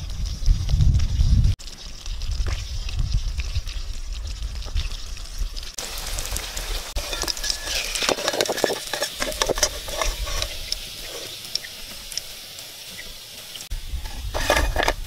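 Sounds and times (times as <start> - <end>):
chicken sizzling in hot oil: 0.0 - 15.0
metal skimmer scraping a wok: 6.9 - 11.6, 13.9 - 15.0.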